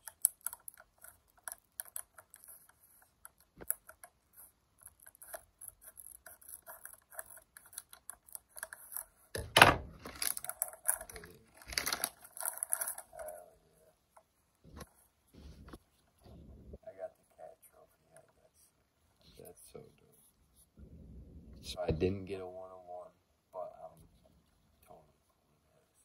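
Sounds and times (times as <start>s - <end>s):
foil bag crinkling: 10.0s - 13.1s.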